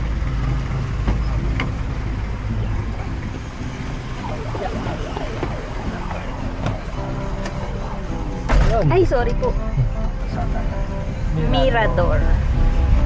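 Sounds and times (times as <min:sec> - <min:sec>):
low rumble of street traffic: 0:00.0 - 0:13.0
vehicle engine: 0:00.0 - 0:13.0
faint voices: 0:03.9 - 0:12.4.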